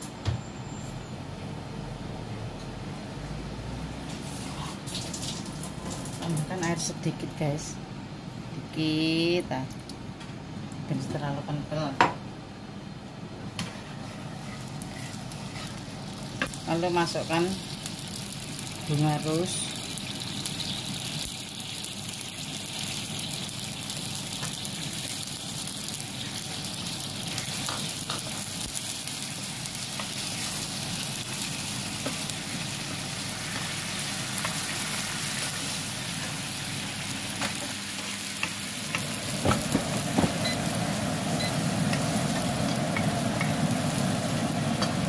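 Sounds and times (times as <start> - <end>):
syrup bubbling in a pan: 17.6 - 37.2.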